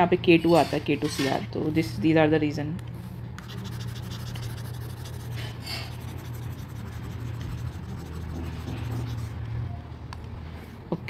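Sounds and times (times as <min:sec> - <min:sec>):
steady low hum: 0:02.8 - 0:11.0
stylus scratching on tablet: 0:03.4 - 0:09.4.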